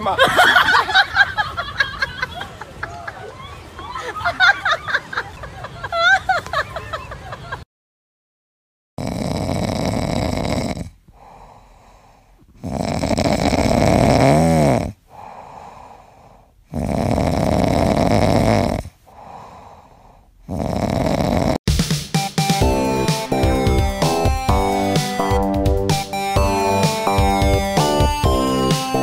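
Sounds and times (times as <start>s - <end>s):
puppy snoring: 9.0s - 11.4s, 12.5s - 15.0s, 16.6s - 19.0s, 20.4s - 21.6s.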